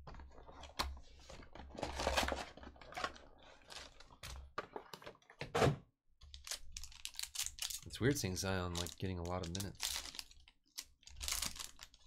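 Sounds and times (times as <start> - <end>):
card packs clicking and rustling: 6.3 - 12.0.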